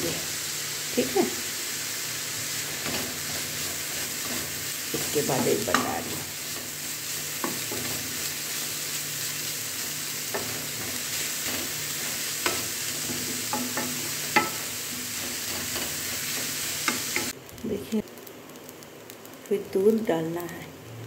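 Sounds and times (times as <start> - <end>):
carrot sizzling in frying pan: 0.0 - 20.8
spatula scraping pan: 10.2 - 17.3.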